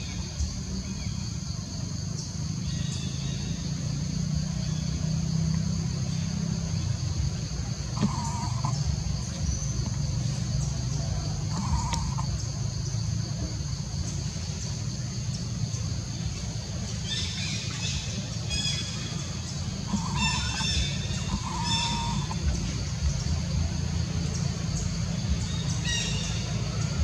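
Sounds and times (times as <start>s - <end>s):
birds calling: 0.0s - 27.0s
low rumble: 6.1s - 27.0s.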